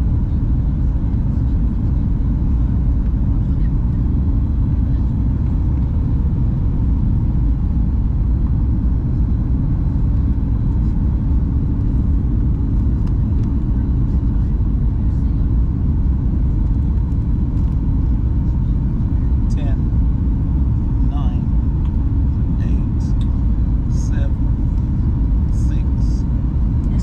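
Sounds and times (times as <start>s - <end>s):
airliner cabin rumble: 0.0s - 27.0s
faint steady hum: 0.0s - 27.0s.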